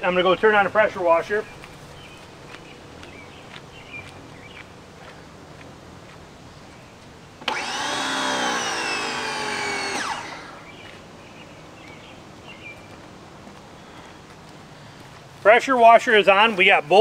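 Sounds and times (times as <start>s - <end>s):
pressure washer motor running: 7.4s - 10.7s.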